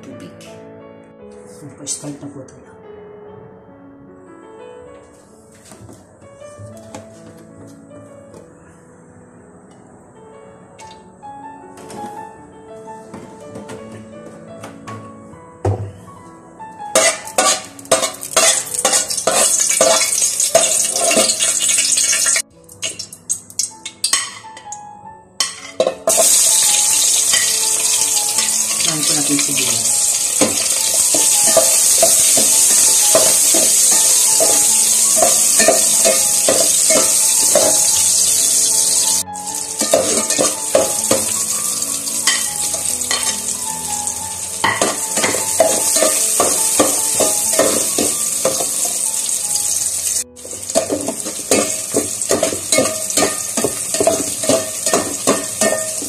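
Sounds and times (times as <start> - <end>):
ladle scraping metal pot: 17.0 - 21.9
onions sizzling in hot oil: 17.0 - 24.3, 25.5 - 56.0.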